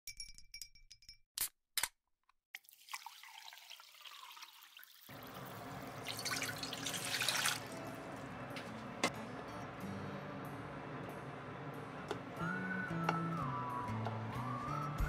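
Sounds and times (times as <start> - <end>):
water pouring into a saucepan: 2.6 - 7.9.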